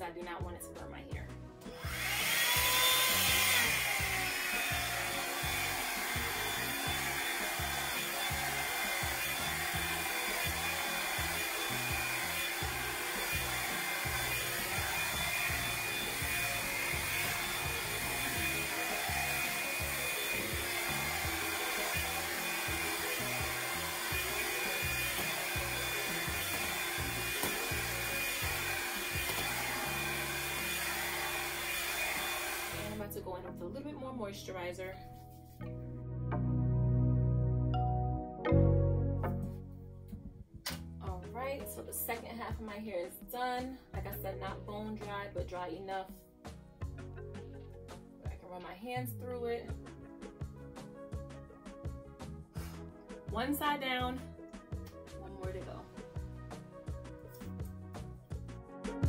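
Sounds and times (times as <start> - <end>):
hair dryer brush running: 1.7 - 33.1.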